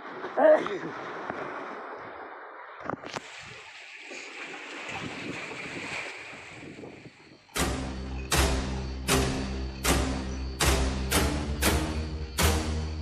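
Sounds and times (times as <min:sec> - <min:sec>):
sea waves washing: 0:00.0 - 0:13.0
wind buffeting microphone: 0:04.7 - 0:07.6
music with heavy drum hit: 0:07.6 - 0:13.0.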